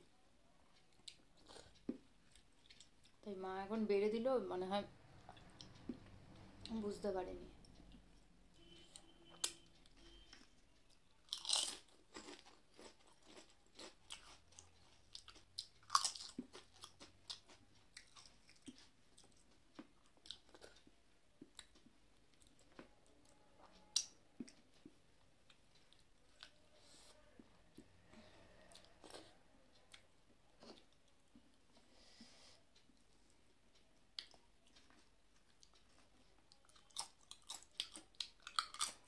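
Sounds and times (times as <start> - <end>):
person chewing crunchy food: 0.9 - 3.2, 10.2 - 22.9, 28.7 - 30.0, 34.2 - 39.0.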